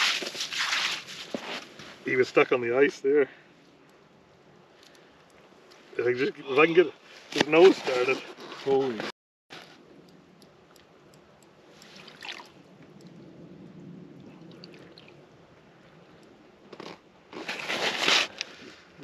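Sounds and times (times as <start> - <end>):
slush crunching and sloshing: 0.0 - 2.0, 11.8 - 12.6, 16.8 - 18.7
fish splashing in water: 11.8 - 12.6.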